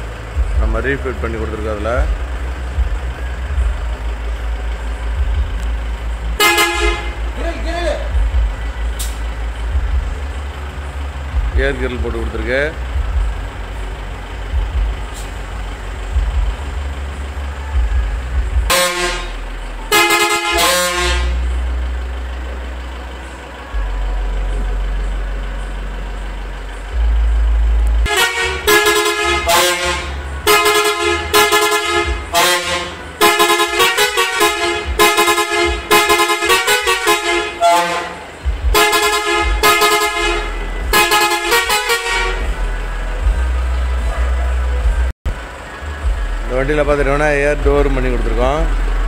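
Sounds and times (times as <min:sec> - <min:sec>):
minibus engine rumble: 0:00.0 - 0:49.0
air horn blasts: 0:06.4 - 0:08.3, 0:18.4 - 0:21.7, 0:28.0 - 0:44.2.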